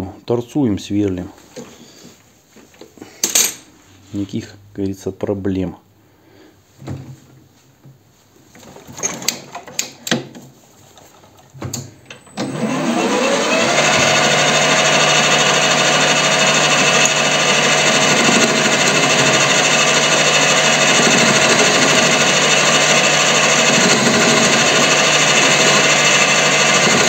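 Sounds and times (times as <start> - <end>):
lathe motor whining: 12.3 - 27.0.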